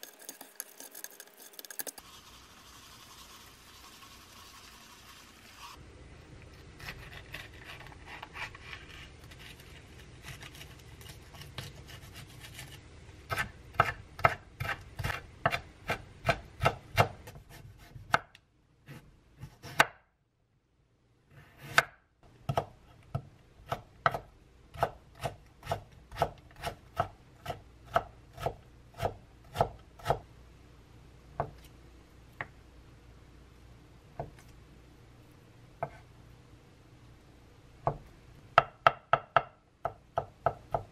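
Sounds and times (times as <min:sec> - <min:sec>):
knife chopping on wooden board: 0:13.3 - 0:18.3, 0:21.6 - 0:30.2.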